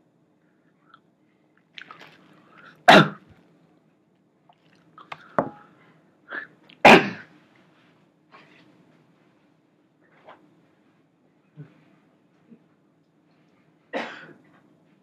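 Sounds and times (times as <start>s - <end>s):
man sneezing: 2.9s - 3.2s, 6.3s - 7.3s.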